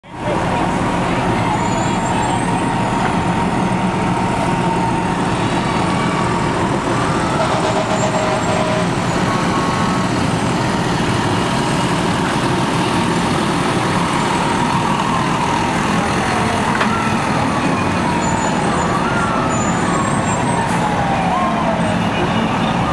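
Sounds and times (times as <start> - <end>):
fire truck engine rumble: 0.0 - 22.9
faint siren tones: 13.8 - 22.9.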